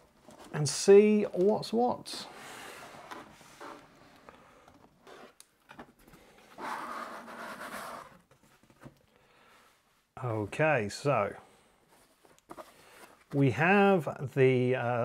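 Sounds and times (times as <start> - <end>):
cardboard rubbing and sliding: 6.5 - 8.3.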